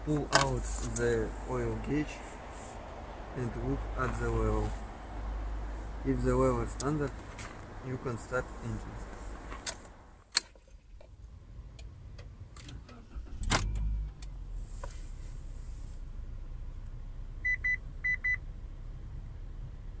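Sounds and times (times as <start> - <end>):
car engine starting and idling: 0.0 - 20.0
dashboard warning beeps: 17.4 - 18.4.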